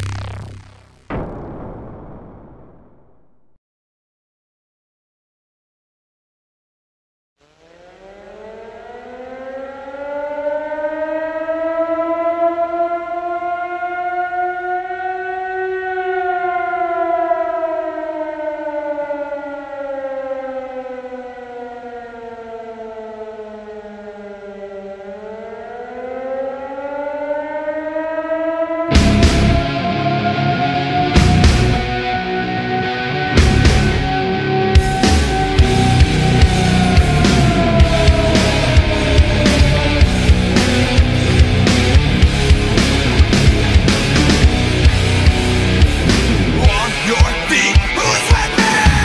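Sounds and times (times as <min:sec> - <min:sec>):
siren wailing: 0:00.0 - 0:03.3, 0:07.4 - 0:42.5, 0:44.2 - 0:49.0
loud rock music: 0:28.9 - 0:49.0.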